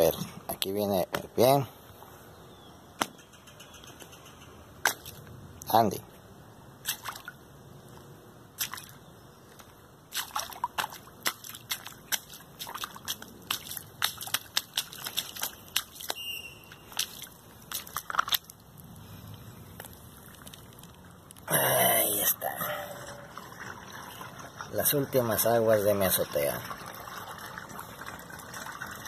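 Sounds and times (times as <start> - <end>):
water drips splashing in puddles: 4.8 - 5.8, 6.8 - 7.5, 8.5 - 29.0.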